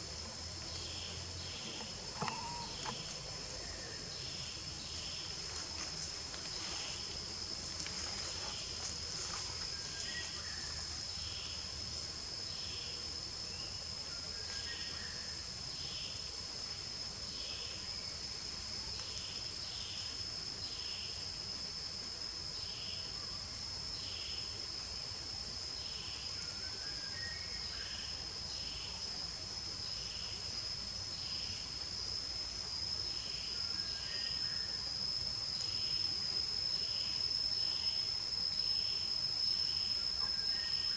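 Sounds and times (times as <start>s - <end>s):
soft pulsing insect call: 0.0s - 40.9s
high-pitched insect drone: 2.1s - 3.2s
faint short chirps: 2.2s - 3.0s.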